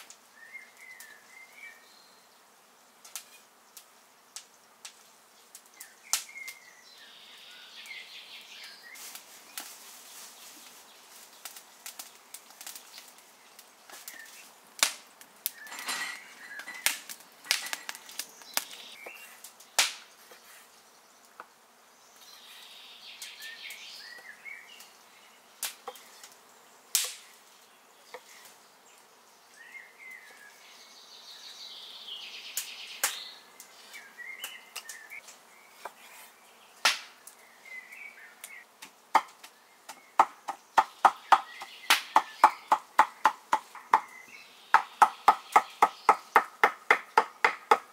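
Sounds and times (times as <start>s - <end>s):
birds chirping: 0.0s - 2.6s, 3.2s - 47.9s
cleaver chopping on wooden board: 39.1s - 44.1s, 44.8s - 47.9s.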